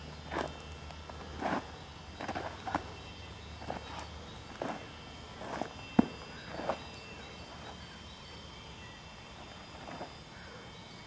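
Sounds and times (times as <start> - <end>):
footsteps and stamps on dirt: 0.0 - 3.0, 3.6 - 6.9
faint steady hiss: 0.0 - 11.0.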